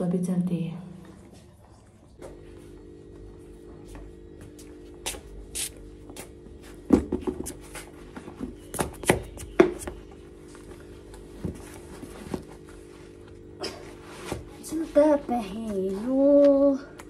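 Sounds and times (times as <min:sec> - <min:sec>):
boots knocking on concrete floor: 0:03.8 - 0:10.2.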